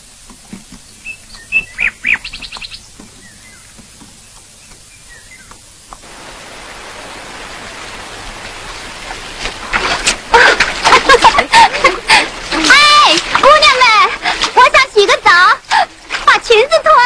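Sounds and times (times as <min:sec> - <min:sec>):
flowing water rushing: 0:00.0 - 0:17.0
small birds chirping: 0:00.7 - 0:06.0
bird trill: 0:01.0 - 0:03.7.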